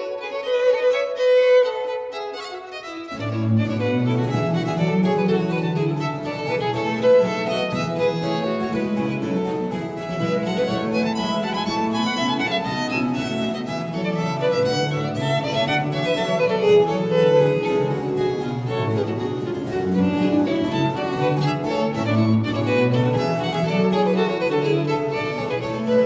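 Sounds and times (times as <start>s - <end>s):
harpsichord continuo: 0.0s - 26.0s
violins playing quick lines: 0.0s - 26.0s
cello bass: 3.0s - 26.0s.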